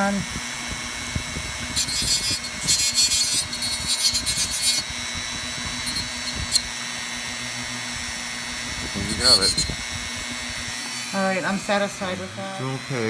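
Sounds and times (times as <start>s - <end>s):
rotary tool whining: 0.0s - 13.0s
bit grinding rasping: 1.7s - 6.7s, 8.7s - 9.9s.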